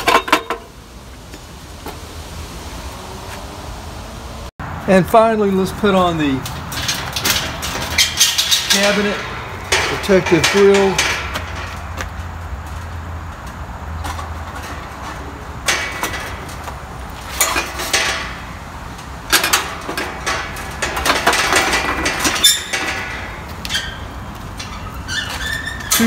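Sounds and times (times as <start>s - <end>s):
wire grill rattling against metal: 5.8s - 26.0s.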